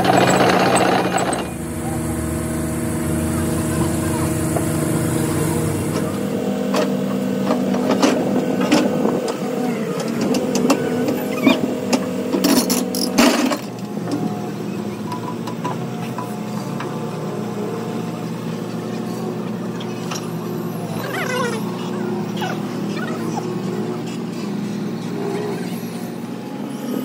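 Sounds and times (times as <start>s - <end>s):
engine running: 0.0s - 27.0s.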